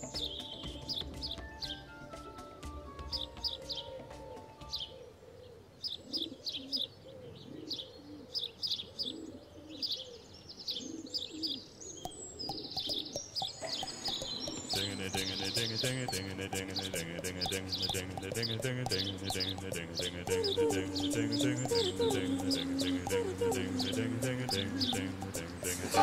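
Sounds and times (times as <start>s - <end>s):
birds chirping: 0.0s - 26.0s
bird cooing: 3.5s - 26.0s
sustained musical tones: 12.1s - 26.0s.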